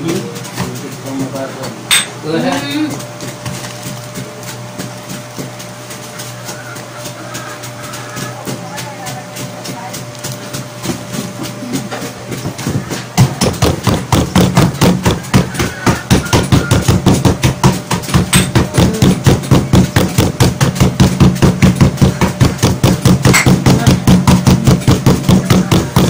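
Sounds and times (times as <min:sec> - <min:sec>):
jar pounding cookies in bag: 0:00.0 - 0:26.0.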